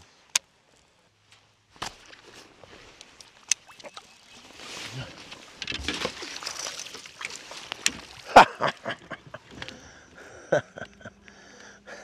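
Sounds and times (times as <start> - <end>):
fish splashing at surface: 5.8 - 8.3.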